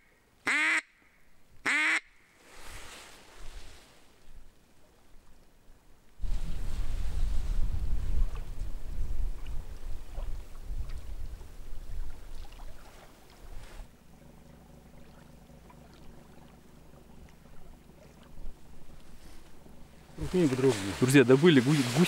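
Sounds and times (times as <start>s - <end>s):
steady low hum: 5.7s - 22.0s
wind gusting on microphone: 6.2s - 12.5s.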